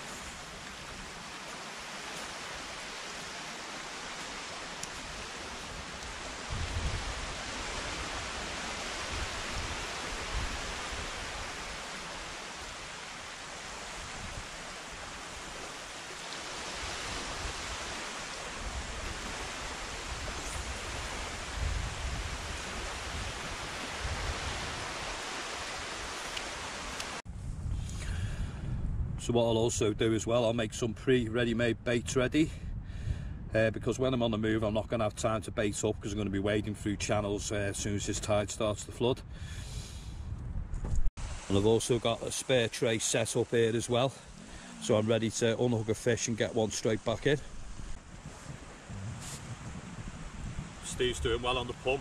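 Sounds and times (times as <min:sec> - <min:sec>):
wind hiss: 0:00.0 - 0:29.3, 0:39.3 - 0:52.0
shallow surf: 0:00.0 - 0:32.6, 0:41.2 - 0:52.0
wind buffeting microphone: 0:04.9 - 0:15.6, 0:16.5 - 0:26.2, 0:27.3 - 0:37.1, 0:39.1 - 0:41.5, 0:46.3 - 0:52.0.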